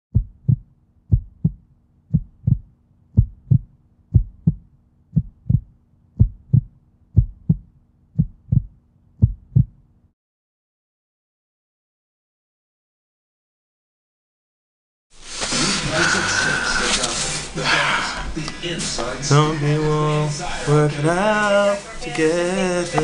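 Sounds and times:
heartbeat thumps: 0.1s - 9.8s.

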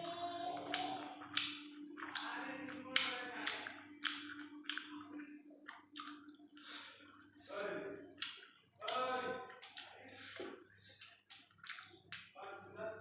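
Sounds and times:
steady faint hum: 0.0s - 13.0s
wet chewing and lip smacks: 0.6s - 12.4s.

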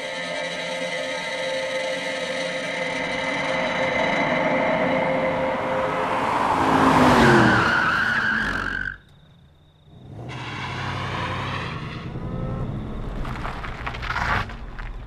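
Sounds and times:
thin high tone: 0.0s - 6.9s
tyres skidding: 0.4s - 15.0s
car speeding by: 3.2s - 8.9s, 9.9s - 14.2s
car engine running: 9.2s - 15.0s.

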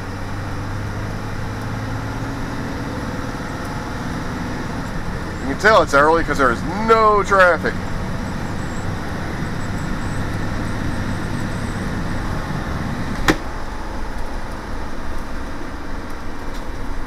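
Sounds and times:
bus engine hum: 0.0s - 17.0s
road noise: 0.0s - 17.0s.

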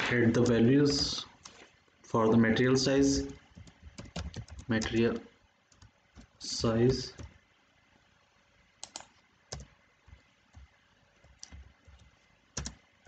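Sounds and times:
keyboard keystrokes: 8.8s - 9.7s.

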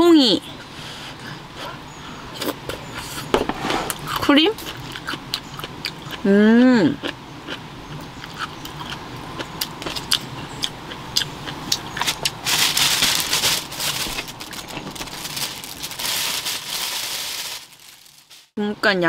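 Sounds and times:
plastic packaging crinkling: 12.0s - 18.6s.

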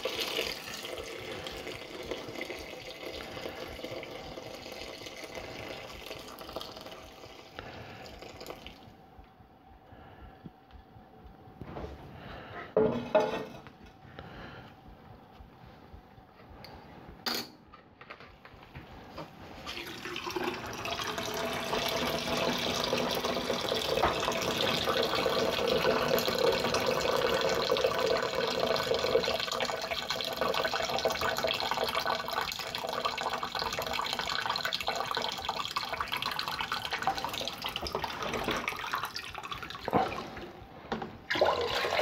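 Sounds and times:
liquid pouring into bucket of grain: 41.3s - 42.0s.

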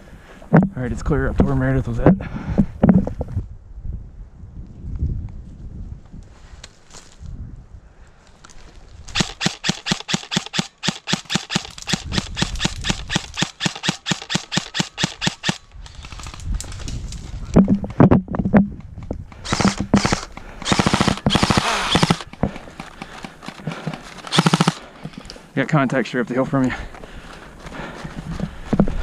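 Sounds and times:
airsoft gunfire: 9.2s - 15.6s, 19.4s - 22.4s, 24.3s - 24.8s.

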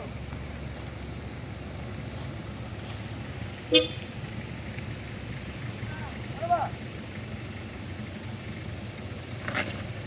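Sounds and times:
vehicle engines rumbling: 0.0s - 10.0s
vehicle horn toot: 3.7s - 4.1s.

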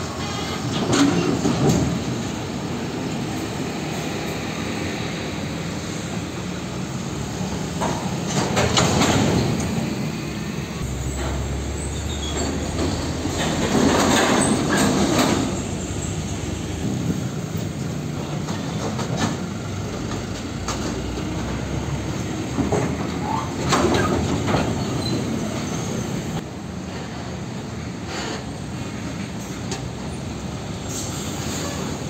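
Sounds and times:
engine and tyre noise: 0.0s - 32.0s
vehicles clattering over rails: 0.0s - 32.0s
low engine rumble: 4.4s - 26.5s.

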